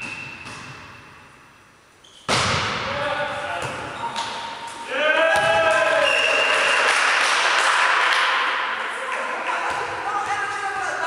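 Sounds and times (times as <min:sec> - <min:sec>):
players shouting and cheering: 0:04.8 - 0:11.0
people clapping: 0:05.6 - 0:09.7.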